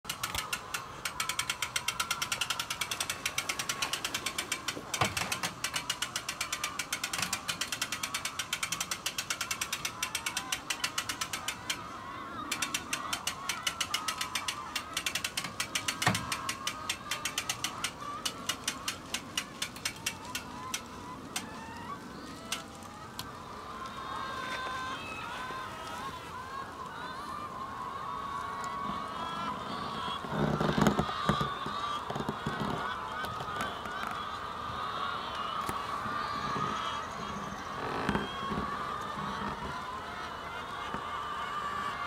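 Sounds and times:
winch ratchet clicking: 0.1s - 23.3s.

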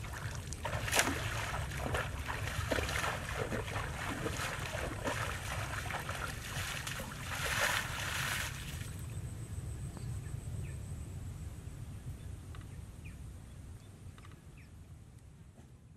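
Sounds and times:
feet splashing through water: 0.0s - 9.0s
low steady rumble: 0.0s - 15.9s.

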